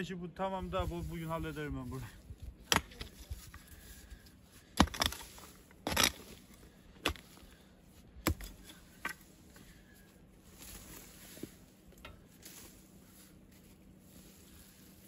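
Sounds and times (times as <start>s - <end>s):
hoe chopping into soil: 2.6s - 3.4s, 4.7s - 7.4s, 8.2s - 9.3s
hoe blade scraping dirt: 2.7s - 7.6s, 8.2s - 15.0s.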